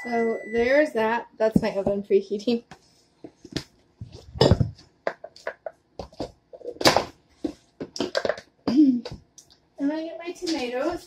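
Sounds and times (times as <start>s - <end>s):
objects knocking on countertop: 4.3s - 7.1s.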